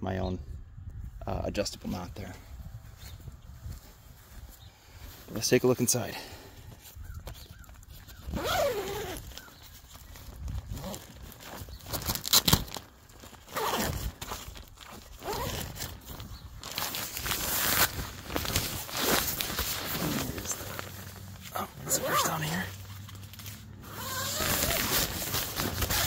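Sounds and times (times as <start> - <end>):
tent fabric rustling: 6.7 - 26.0
tent zipper pulled open: 8.0 - 9.6, 10.2 - 26.0.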